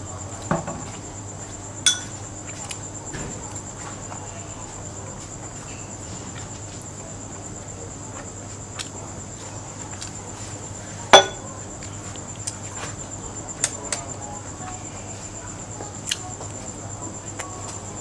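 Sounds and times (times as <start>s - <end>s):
crickets chirring: 0.0s - 18.0s
chopsticks clinking on metal tray: 1.9s - 2.2s, 11.2s - 11.4s
soft eating clicks: 15.9s - 16.6s.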